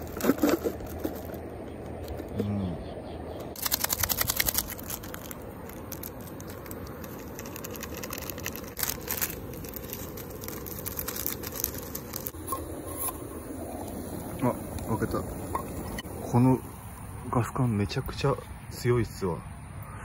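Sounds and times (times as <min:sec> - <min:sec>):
sachet tearing open: 0:00.0 - 0:01.4, 0:03.6 - 0:12.4
dry flakes shaken into cup: 0:03.6 - 0:12.3
plastic sachet crinkling: 0:03.6 - 0:12.4.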